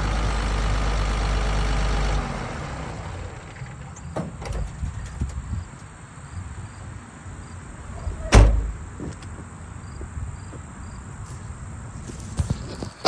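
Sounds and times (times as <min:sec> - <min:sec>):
diesel engine idling: 0:00.0 - 0:04.1
loud thump: 0:08.1 - 0:08.8.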